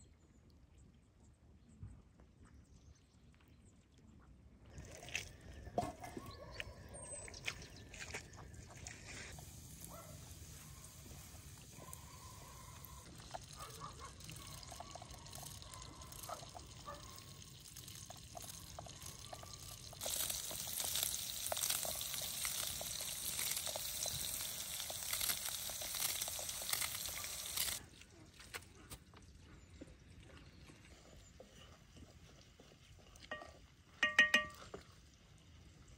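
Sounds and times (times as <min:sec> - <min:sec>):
hot pan sizzling: 0:09.3 - 0:13.8, 0:17.4 - 0:27.8
wood fire crackling: 0:17.4 - 0:27.8.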